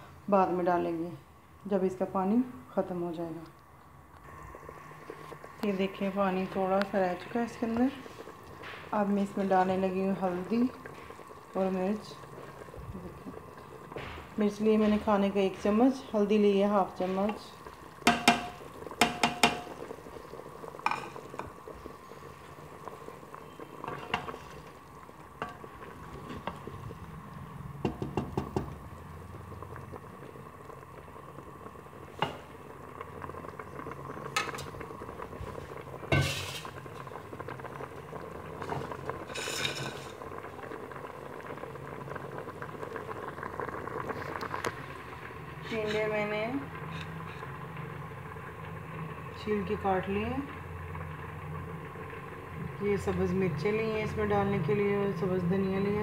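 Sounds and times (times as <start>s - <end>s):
broth bubbling at a boil: 0.0s - 56.0s
spoon clinking against pot: 18.1s - 19.8s.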